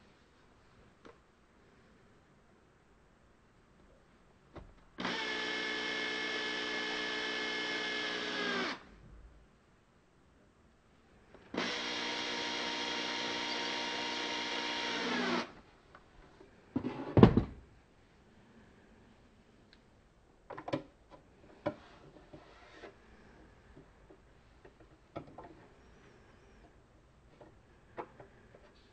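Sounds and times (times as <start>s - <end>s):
cordless drill running: 5.0s - 8.8s, 11.5s - 15.5s.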